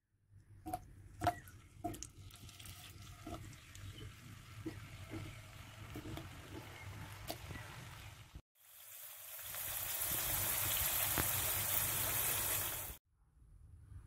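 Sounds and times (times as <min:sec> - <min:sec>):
potatoes sizzling in oil: 0:02.8 - 0:13.0.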